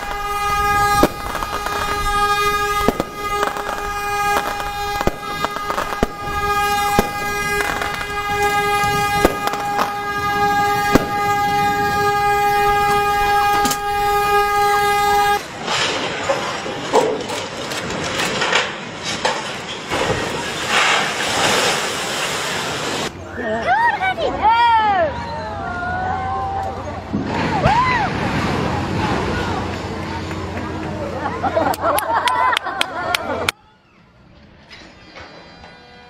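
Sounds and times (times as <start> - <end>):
ship's horn blast: 0.0 - 15.8, 35.4 - 36.0
loud noisy rush: 0.0 - 23.2.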